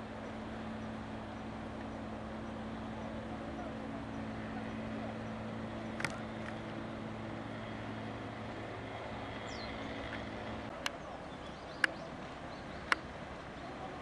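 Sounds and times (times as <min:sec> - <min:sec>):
boat engine idling: 0:00.0 - 0:14.0
open-air background noise: 0:00.0 - 0:14.0.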